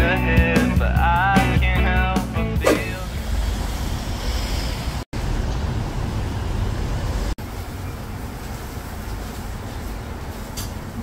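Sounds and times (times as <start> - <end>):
street noise rush and rumble: 2.5 - 11.0.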